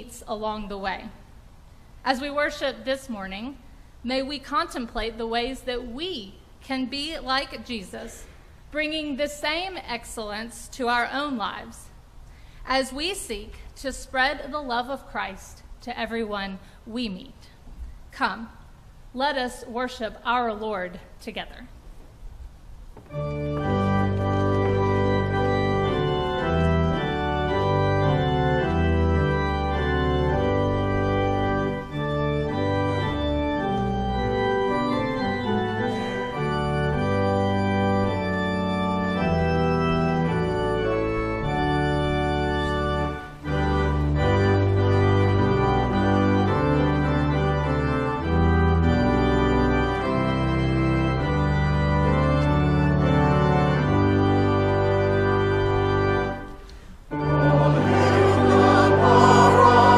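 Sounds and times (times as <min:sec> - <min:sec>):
church pipe organ chords: 0:23.1 - 0:59.9.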